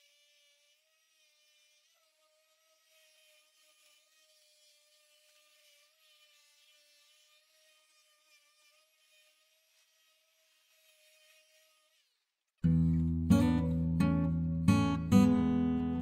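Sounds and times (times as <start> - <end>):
orbital sander motor whine: 0.0 - 12.2.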